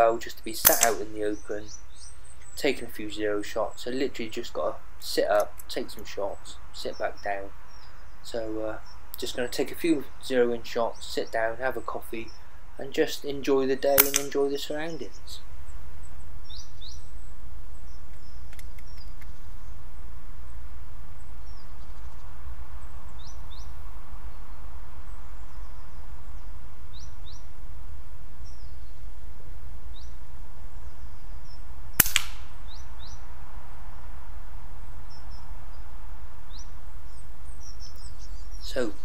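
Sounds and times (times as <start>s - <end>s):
small birds chirping: 0.0s - 39.0s
air rifle shot crack: 0.6s - 1.2s, 13.9s - 14.4s, 32.0s - 32.8s.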